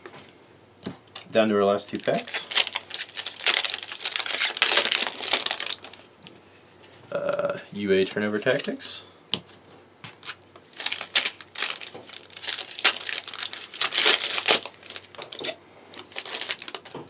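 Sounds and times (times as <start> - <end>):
foil pack crinkling and tearing: 1.9 - 6.1, 10.1 - 16.9.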